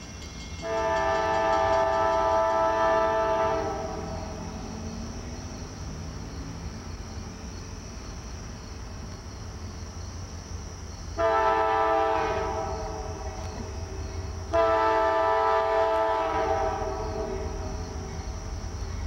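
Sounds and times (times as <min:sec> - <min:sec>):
train rumble: 0:00.0 - 0:19.0
locomotive air horn blast: 0:00.6 - 0:04.6, 0:11.2 - 0:18.0.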